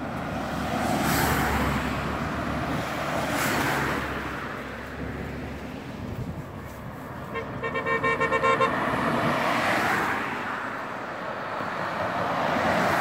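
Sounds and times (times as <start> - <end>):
vehicles passing close by: 0.0 - 13.0
police car horn toots: 7.2 - 8.9.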